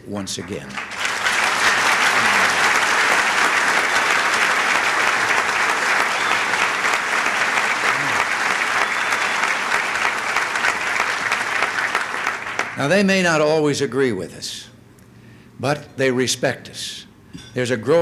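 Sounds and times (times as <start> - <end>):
audience applauding: 0.4 - 12.9
faint voices: 7.8 - 8.4.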